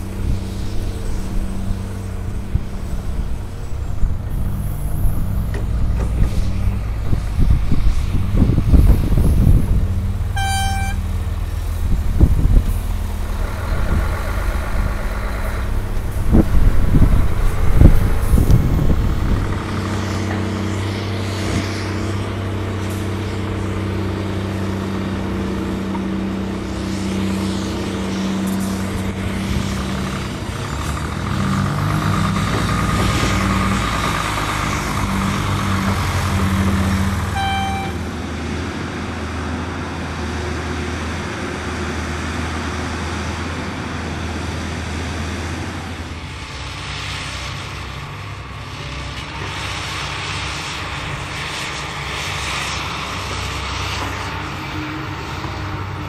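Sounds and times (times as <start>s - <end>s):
dump truck diesel drone: 0.0s - 56.0s
excavator engine running: 0.0s - 56.0s
short beep: 10.4s - 11.1s, 37.4s - 38.0s.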